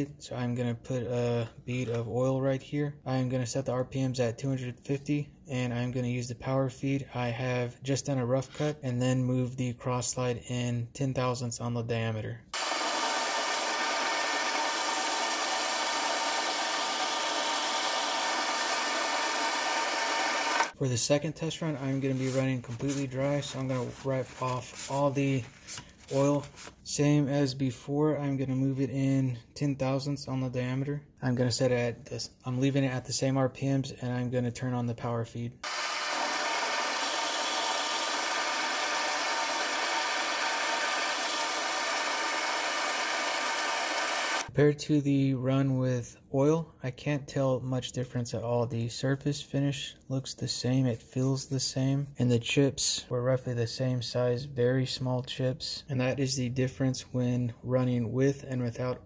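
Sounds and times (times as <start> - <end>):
lathe cutting hiss: 12.6 - 20.7, 35.6 - 44.5.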